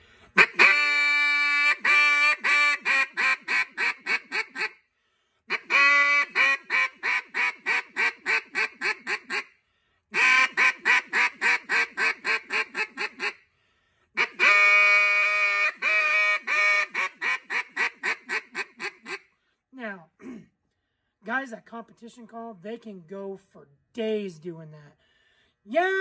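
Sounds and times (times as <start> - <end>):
duck call quacking: 0.2 - 4.8, 5.5 - 9.5, 10.1 - 13.4, 14.2 - 19.3.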